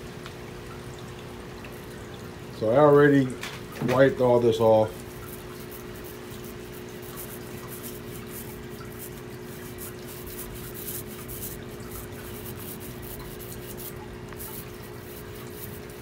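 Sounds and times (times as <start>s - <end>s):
steady hum: 0.0s - 16.0s
paint roller rubbing on glass: 5.3s - 16.0s.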